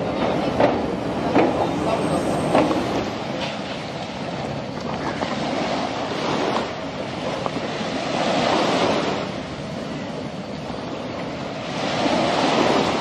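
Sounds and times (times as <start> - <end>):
sea water washing: 0.0 - 13.0.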